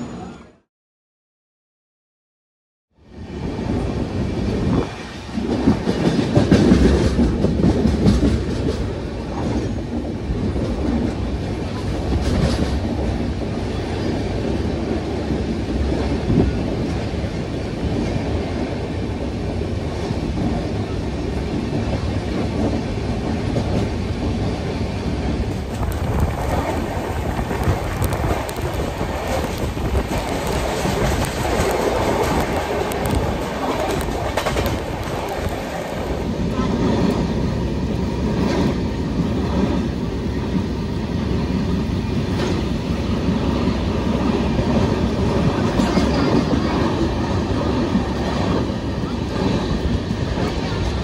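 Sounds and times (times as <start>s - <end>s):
train coaches rumbling: 3.0s - 51.0s
wheels clacking over rail joints: 25.4s - 37.2s.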